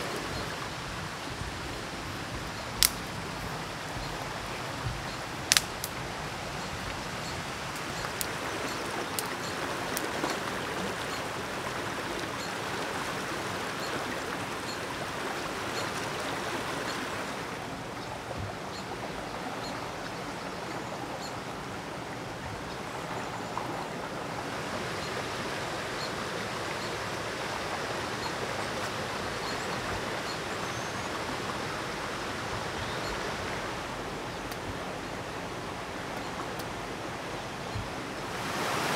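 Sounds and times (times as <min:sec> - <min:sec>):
river rushing over rocks: 0:00.0 - 0:38.9
dry twigs ticking: 0:01.6 - 0:10.4
twig snapping: 0:02.8 - 0:03.1, 0:05.5 - 0:06.0.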